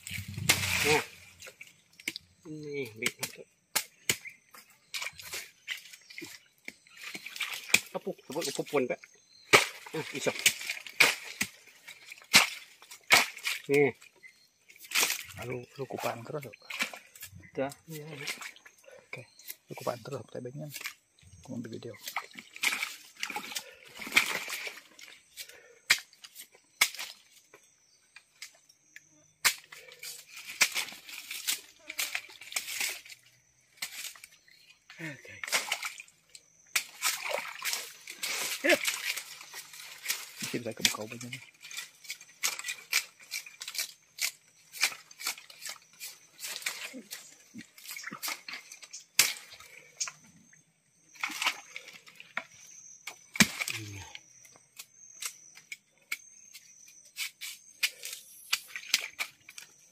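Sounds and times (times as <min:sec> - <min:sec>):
woody palm stems cracking: 0:00.0 - 0:08.7, 0:09.4 - 0:18.6, 0:22.0 - 0:50.3, 0:51.2 - 0:59.9
rustle of stems and fronds: 0:00.0 - 0:59.9
machete chopping stalk: 0:00.2 - 0:01.0.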